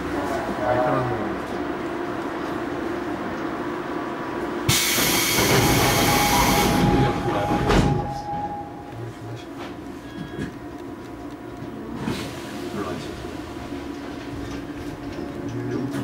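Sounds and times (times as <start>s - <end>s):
subway car hum: 0.0s - 16.0s
train motor whine: 4.7s - 10.6s.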